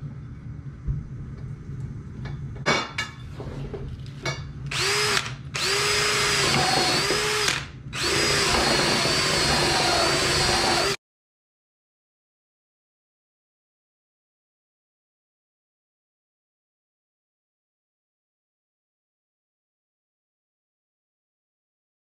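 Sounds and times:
cordless drill motor whine: 4.7s - 11.0s.

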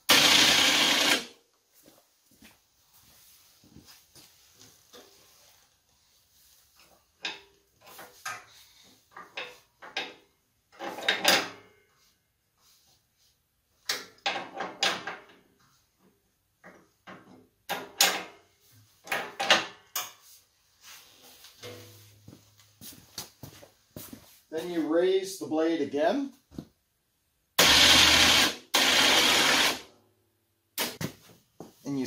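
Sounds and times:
metal clanks and rattles: 7.2s - 11.7s, 21.6s - 22.1s.

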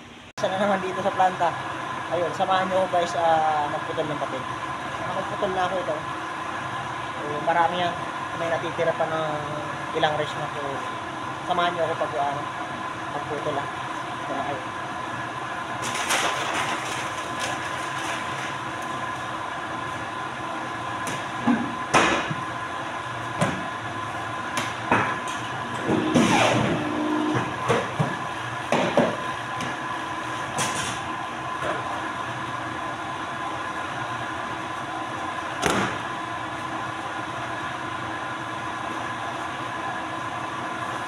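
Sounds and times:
paper cutter humming: 23.6s - 28.0s.

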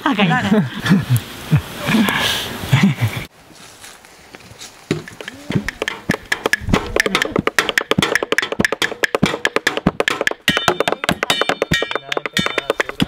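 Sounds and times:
percussive tapping music: 4.9s - 13.0s.

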